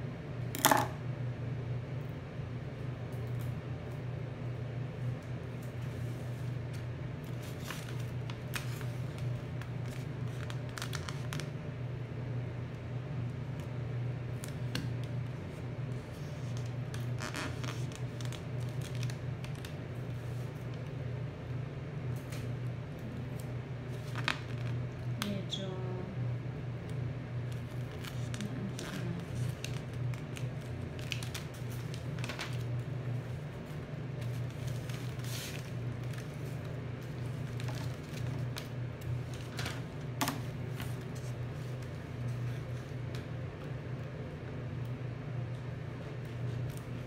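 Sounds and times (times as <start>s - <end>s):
steady low hum: 0.0s - 47.0s
paper rustling and crinkling: 5.7s - 11.5s, 14.4s - 20.8s, 23.3s - 24.8s, 27.5s - 43.3s.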